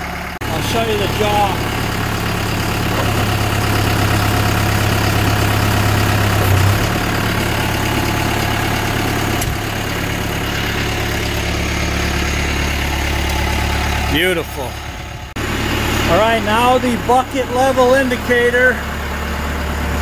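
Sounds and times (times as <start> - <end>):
tractor diesel engine idling: 0.0 - 20.0
click: 9.4 - 9.6.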